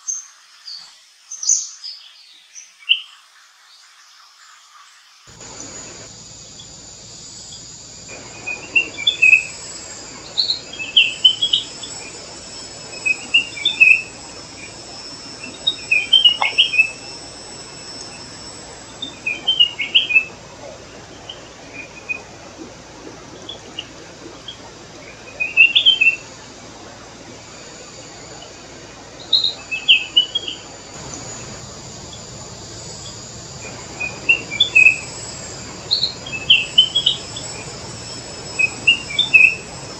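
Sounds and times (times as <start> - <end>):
high background hiss: 0.0 - 39.9
bird chirping and warbling: 5.4 - 20.3, 29.4 - 39.9.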